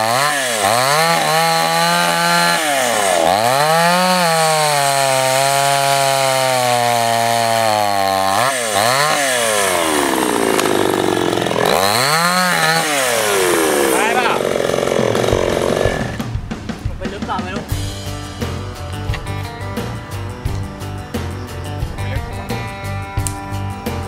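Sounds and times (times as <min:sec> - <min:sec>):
chainsaw cutting log: 0:00.0 - 0:16.4.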